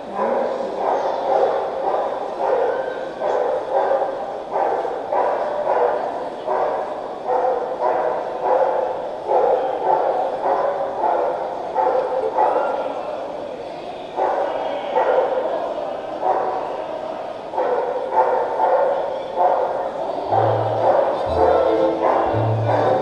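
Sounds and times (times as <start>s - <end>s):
small dog barking: 0.2s - 12.8s, 17.6s - 23.0s.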